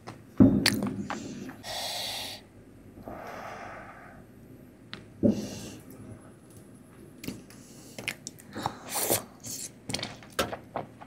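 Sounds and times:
person breathing: 1.0s - 4.4s, 5.3s - 5.9s
wet mouth sound: 8.8s - 9.8s.

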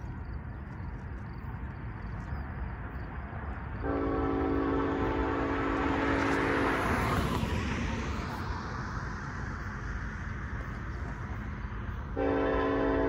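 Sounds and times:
car passing with tyre hiss: 3.1s - 13.0s
train air horn chord: 3.8s - 6.9s, 12.2s - 13.0s.

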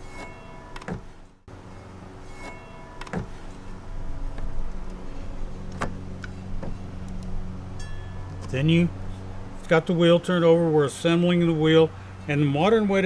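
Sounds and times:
steady low hum: 0.0s - 13.0s
knocks and clunks of wheel handling: 0.8s - 1.2s, 2.5s - 3.6s, 5.6s - 7.0s.

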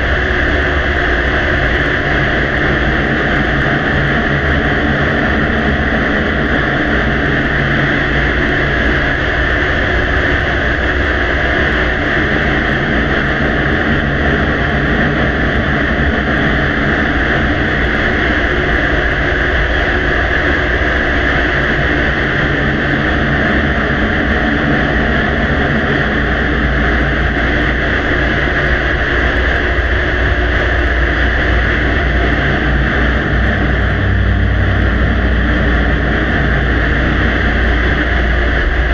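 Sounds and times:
low rumble: 0.0s - 38.9s
steady loud hiss: 0.0s - 38.9s.

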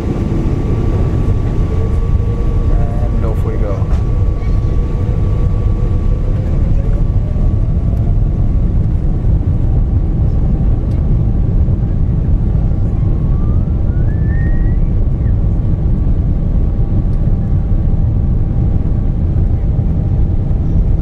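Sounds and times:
jet engine whine rising in pitch: 0.0s - 21.0s
jet engines rumbling: 0.0s - 21.0s.

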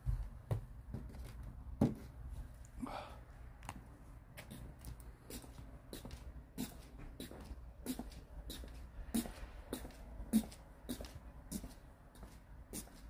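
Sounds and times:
footsteps: 0.0s - 2.5s.

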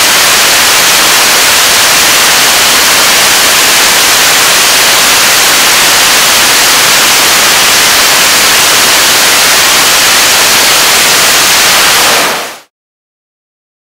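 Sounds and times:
rocket engine exhaust roar: 0.0s - 12.6s.

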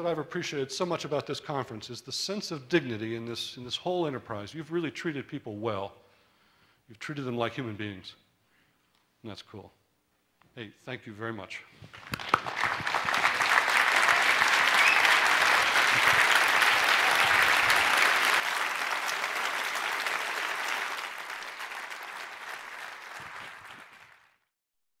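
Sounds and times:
audience applauding: 11.9s - 24.5s.

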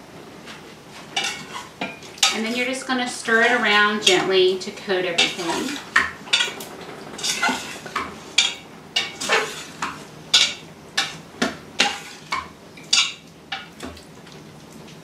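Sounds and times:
spoon scraping metal pot: 5.0s - 6.6s, 7.2s - 9.8s.

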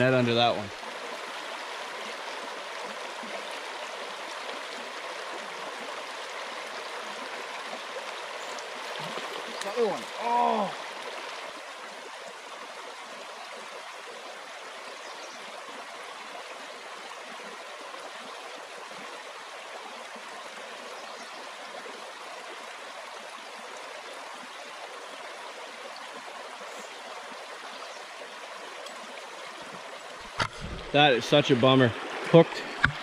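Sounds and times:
creek flowing over stones: 0.0s - 33.0s.

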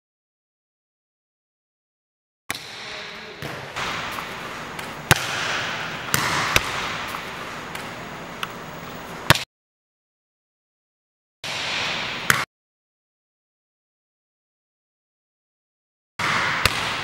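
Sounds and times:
volleyball smacking off forearms: 2.5s - 8.0s
echoing gymnasium hiss: 2.6s - 9.4s.

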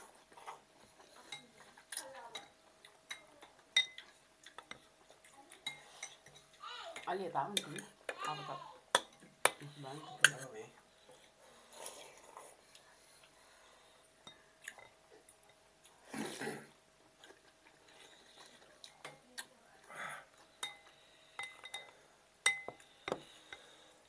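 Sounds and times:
cutlery clinking on glass bowls: 3.1s - 4.8s, 20.6s - 23.6s
noodle soup slurping: 16.0s - 16.8s.

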